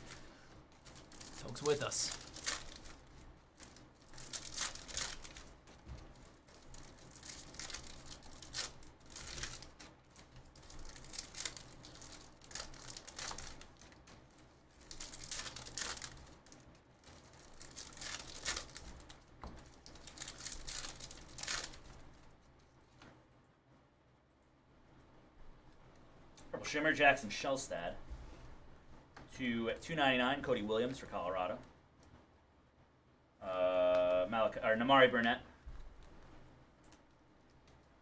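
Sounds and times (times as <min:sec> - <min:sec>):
foil wrappers tearing and crinkling: 0:00.0 - 0:22.3.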